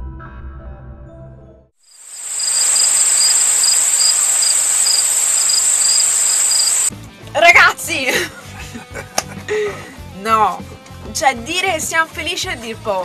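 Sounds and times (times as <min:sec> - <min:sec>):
high-pitched insect chirring: 0:01.9 - 0:06.9.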